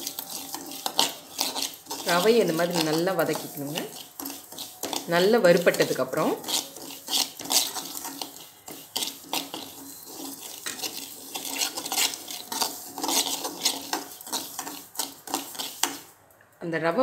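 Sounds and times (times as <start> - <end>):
ladle scraping metal pan: 0.0 - 16.1.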